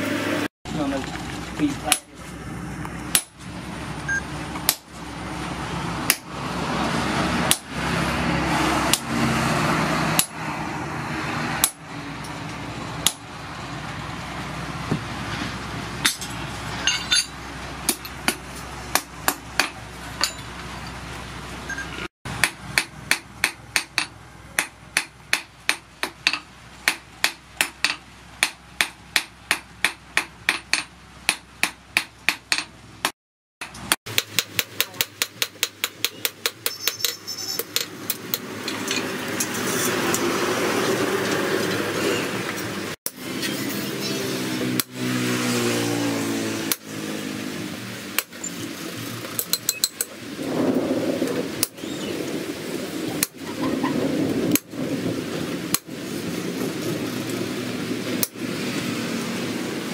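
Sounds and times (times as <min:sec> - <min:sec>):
heavy hammer strikes on chisel: 0:22.4 - 0:32.7
steady rushing noise: 0:47.0 - 0:59.9.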